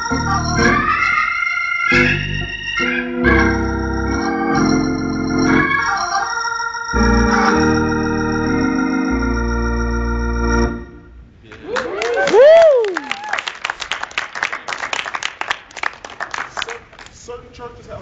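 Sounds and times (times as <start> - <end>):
organ playing held chords: 0.0 - 11.2.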